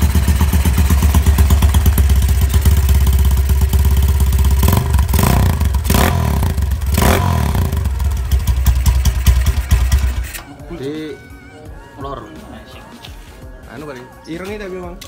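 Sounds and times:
motorcycle engine idling loudly: 0.0s - 10.4s.

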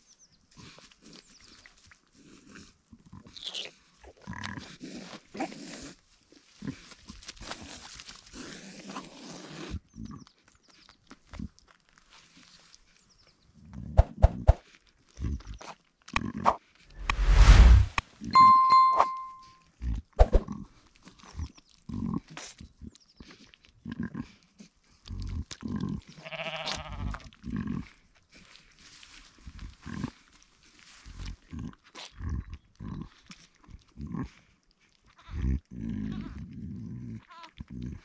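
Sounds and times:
sheep licking lamb: 0.1s - 5.3s, 20.8s - 38.0s
sheep bleat: 26.1s - 27.3s, 35.1s - 36.4s, 37.3s - 37.5s.

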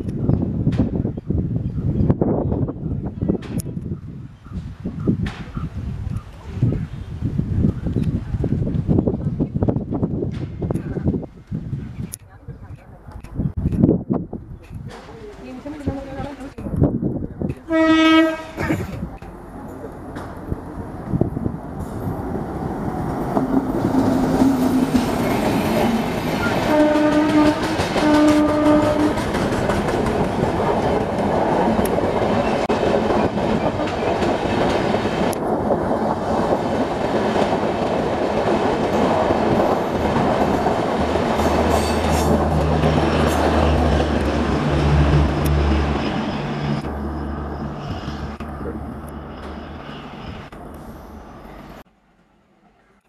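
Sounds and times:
locomotive horn blasts: 17.7s - 18.6s, 26.6s - 29.2s
train wheels clattering: 23.0s - 46.3s.

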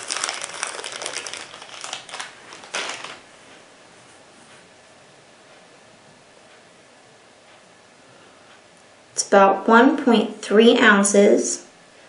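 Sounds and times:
plastic bag crinkling: 0.0s - 3.3s.

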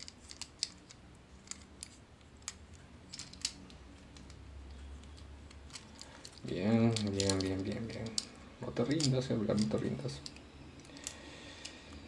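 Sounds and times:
plastic parts clicking into place: 0.0s - 4.4s.

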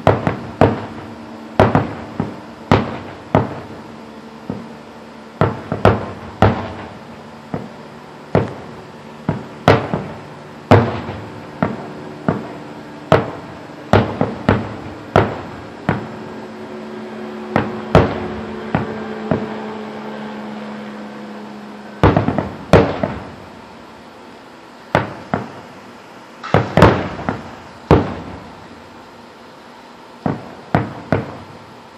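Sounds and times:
firework bangs with echo: 0.0s - 4.8s, 5.4s - 16.4s, 17.5s - 20.4s, 22.0s - 23.7s, 24.9s - 25.8s, 26.4s - 28.8s, 30.2s - 31.7s.

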